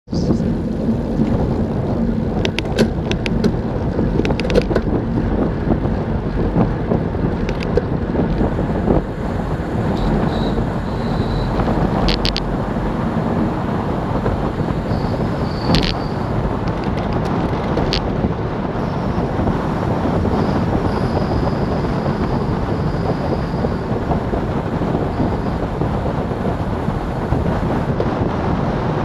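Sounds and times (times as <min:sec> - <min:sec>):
wind rushing over microphone: 0:00.0 - 0:29.0
sharp clicks and knocks: 0:02.4 - 0:05.0, 0:06.9 - 0:08.4, 0:11.6 - 0:12.5, 0:16.6 - 0:18.1.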